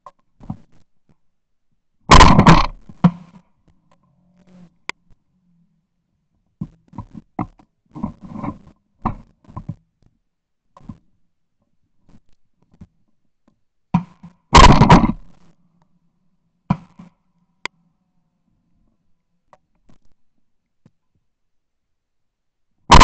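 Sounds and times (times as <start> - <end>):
loud shotgun shot: 2.1 - 2.8, 14.5 - 15.2.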